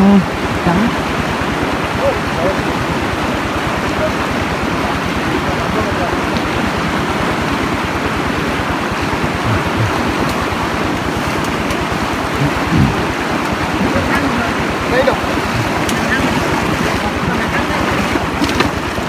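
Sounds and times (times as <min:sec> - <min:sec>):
stream water rushing: 0:00.0 - 0:19.0
rapid low throbbing: 0:08.7 - 0:17.8.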